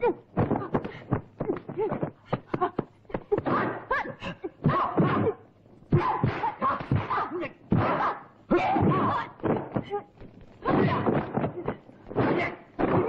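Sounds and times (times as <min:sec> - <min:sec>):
fighters shouting: 0:03.4 - 0:09.4, 0:10.6 - 0:11.3
punch and kick impacts: 0:06.0 - 0:10.0, 0:10.6 - 0:13.0.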